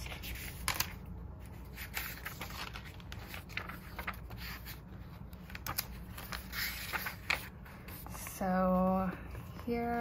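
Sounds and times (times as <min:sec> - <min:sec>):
paper pages flicking: 0:00.0 - 0:01.0, 0:01.8 - 0:04.7, 0:05.4 - 0:07.5.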